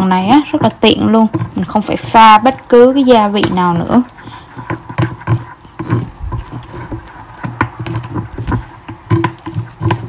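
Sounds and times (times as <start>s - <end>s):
chopsticks tapping a ceramic bowl: 3.3s - 10.0s.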